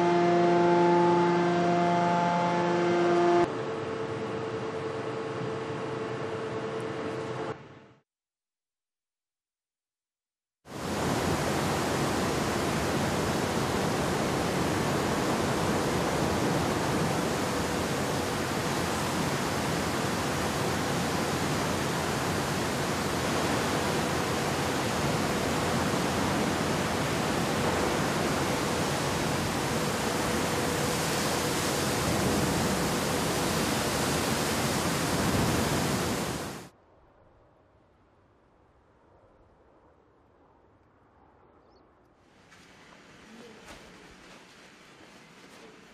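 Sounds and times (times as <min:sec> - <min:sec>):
steady rushing noise: 0:10.7 - 0:36.7, 0:42.2 - 0:45.9.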